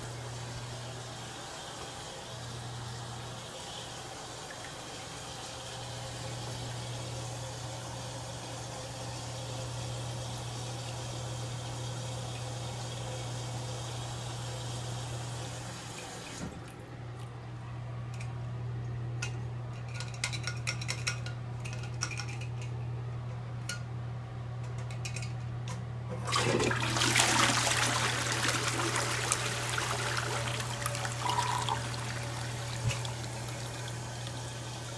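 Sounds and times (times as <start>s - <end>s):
toilet flushing: 0.0s - 16.7s, 26.1s - 34.9s
water running into toilet bowl: 26.2s - 34.9s
water drips and trickles: 29.1s - 34.9s.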